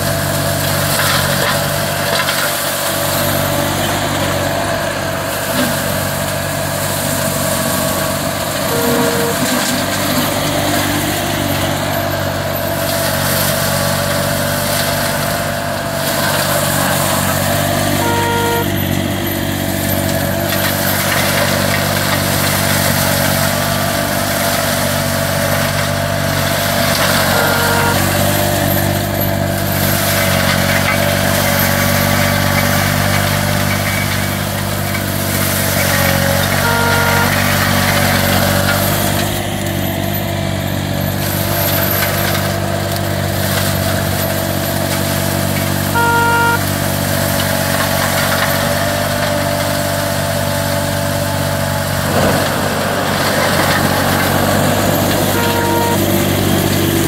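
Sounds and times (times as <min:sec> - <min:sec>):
mower engine running under load: 0:00.0 - 0:57.0
short beep: 0:08.7 - 0:09.7, 0:17.9 - 0:18.8, 0:27.1 - 0:28.2, 0:36.6 - 0:37.7, 0:45.9 - 0:46.7, 0:55.2 - 0:56.4.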